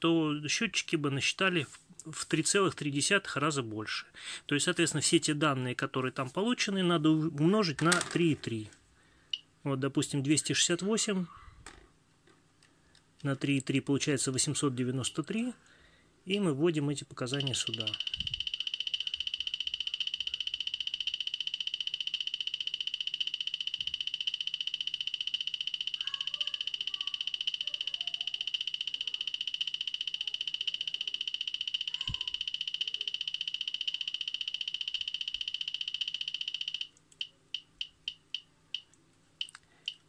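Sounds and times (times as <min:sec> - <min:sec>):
high-pitched buzzer beeping: 0:17.2 - 0:38.9.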